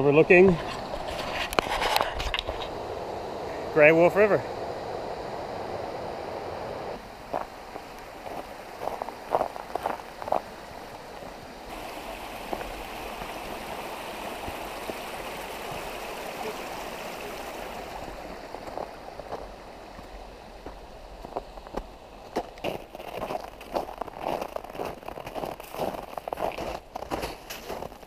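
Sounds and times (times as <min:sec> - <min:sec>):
river rushing: 0:02.7 - 0:23.0.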